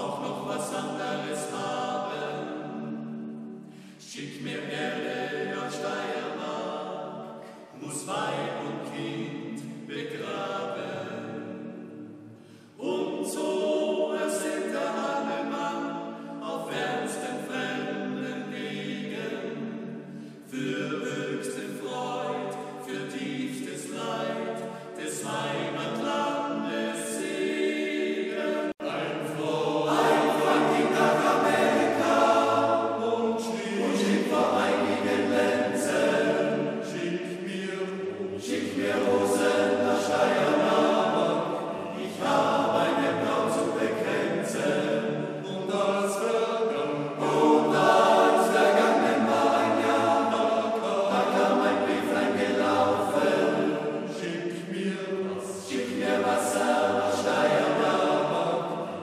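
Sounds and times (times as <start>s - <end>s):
male choir singing a cappella: 0.0s - 59.0s.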